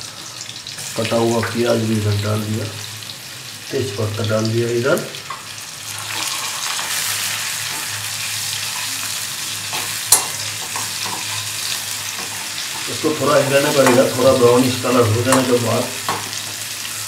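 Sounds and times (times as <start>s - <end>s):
food sizzling in hot oil: 0.0s - 17.0s
spatula clacking against pan: 9.7s - 11.4s, 13.7s - 14.2s, 15.3s - 16.6s
spatula scraping pan: 9.7s - 17.0s.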